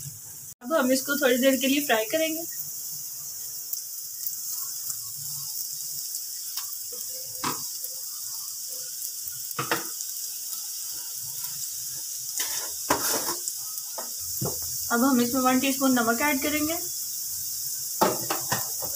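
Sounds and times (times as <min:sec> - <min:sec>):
oil sizzling in frying pan: 0:00.0 - 0:18.9
wooden spatula scraping pan: 0:12.4 - 0:13.4.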